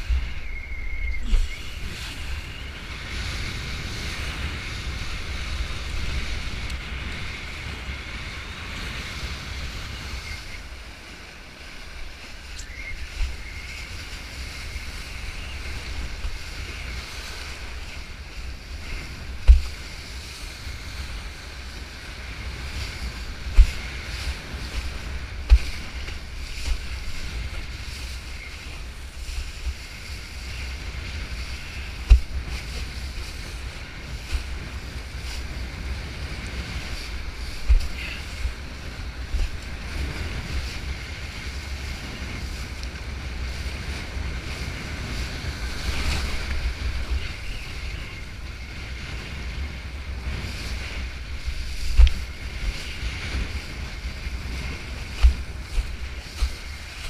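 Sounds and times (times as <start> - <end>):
water spray and surf hissing: 0.0 - 57.0
wind buffeting microphone: 0.0 - 57.0
sharp thumps: 32.0 - 32.3.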